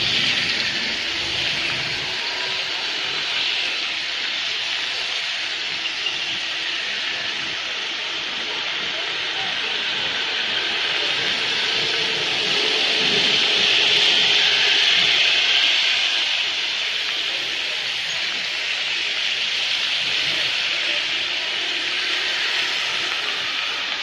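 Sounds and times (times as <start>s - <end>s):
rain on wet pavement: 14.9s - 24.0s.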